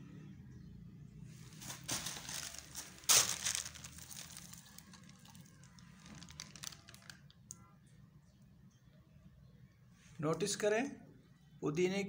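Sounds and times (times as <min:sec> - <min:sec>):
plastic bags crinkling: 0:01.4 - 0:07.5.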